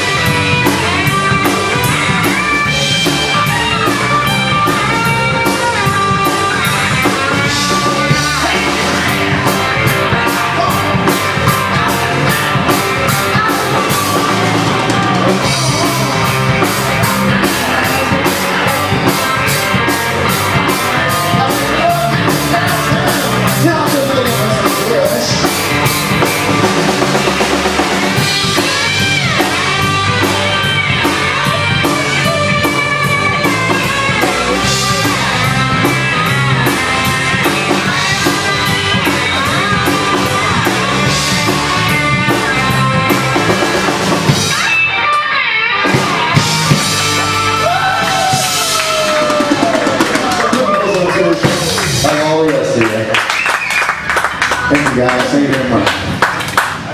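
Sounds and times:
drum kit with cymbals: 0.0s - 45.0s, 45.8s - 52.4s
lead guitar bending notes: 0.0s - 52.8s
bass guitar: 0.0s - 56.9s
distorted electric guitars: 0.0s - 56.9s.

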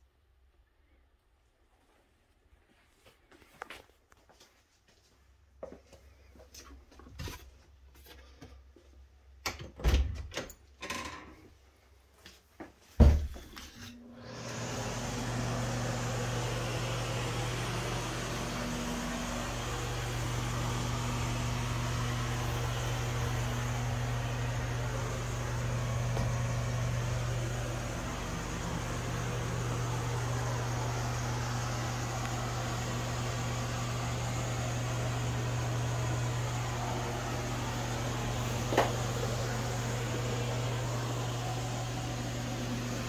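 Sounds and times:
exhaust fan humming and hissing: 13.0s - 43.0s.

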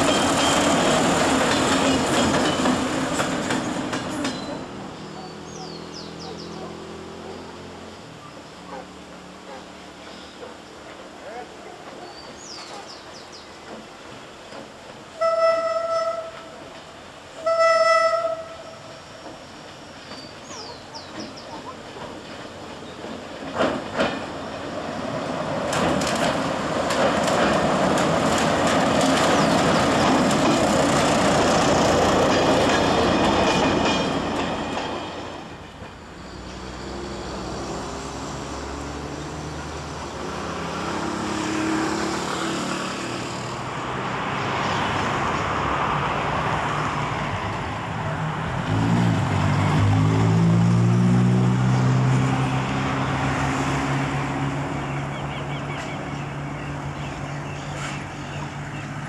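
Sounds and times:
rail clacks: 0.0s - 4.8s, 11.8s - 17.0s, 18.1s - 36.7s
train wheels rumbling on rails: 0.0s - 7.9s, 8.6s - 59.0s.

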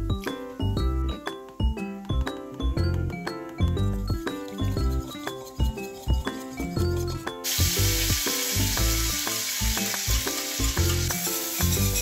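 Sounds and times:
background music with plucked melody: 0.0s - 12.0s
sauce sizzling in hot oil: 7.4s - 12.0s.

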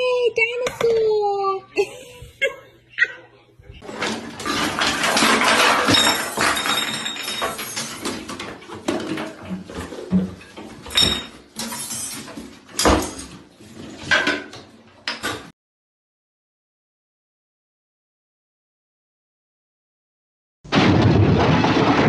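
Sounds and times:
small hard objects clattering: 3.8s - 12.5s.

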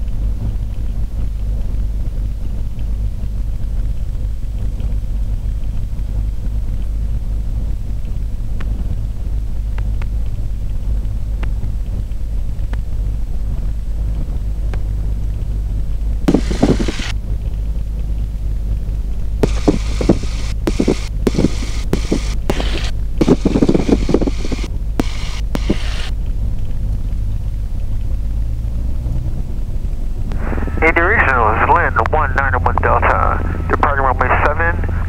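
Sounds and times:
propeller plane engine idling: 0.0s - 28.4s, 29.6s - 35.0s
bursts of rushing noise: 16.3s - 17.1s, 19.4s - 26.1s, 30.3s - 35.0s.

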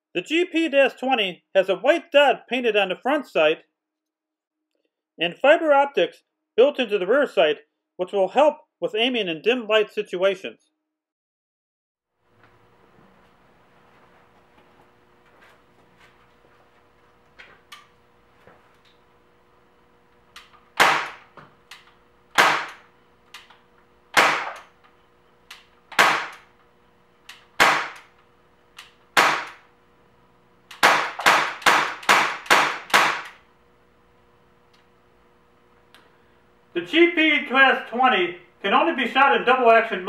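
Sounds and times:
air pistol shots popping: 20.8s - 21.3s, 22.3s - 22.8s, 24.1s - 24.6s, 25.9s - 26.5s, 27.6s - 28.1s, 29.2s - 29.6s, 30.7s - 33.4s.

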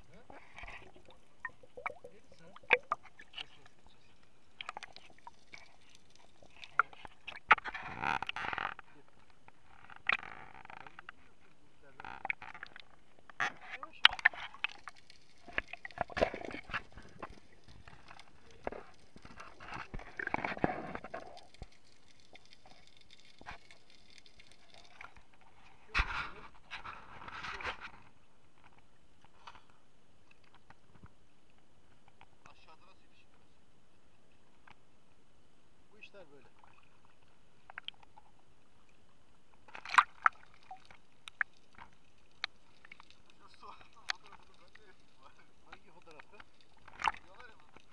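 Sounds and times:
water splashing and bubbling: 0.0s - 8.7s, 12.0s - 25.6s, 36.5s - 45.3s, 45.9s - 47.9s.

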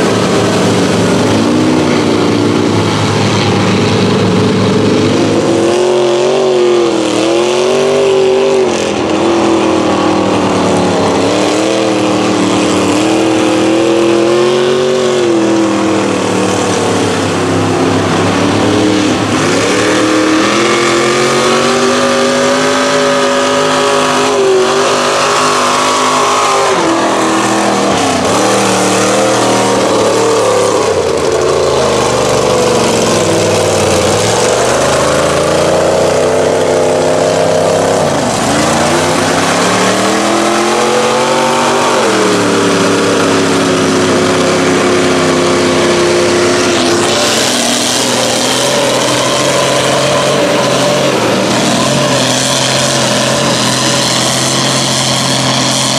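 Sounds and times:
truck engines revving: 0.0s - 55.9s.

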